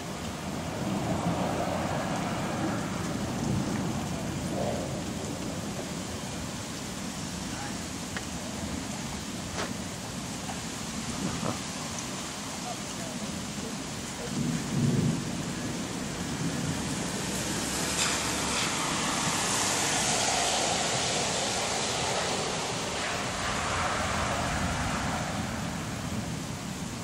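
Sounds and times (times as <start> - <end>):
rain hiss: 0.0 - 27.0
low thunder rumble: 0.4 - 6.6, 14.2 - 27.0.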